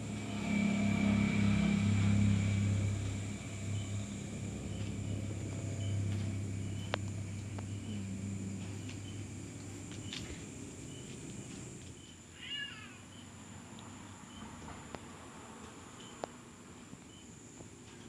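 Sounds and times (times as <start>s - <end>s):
faint chirping: 2.2s - 13.4s
cat meow: 12.4s - 13.0s.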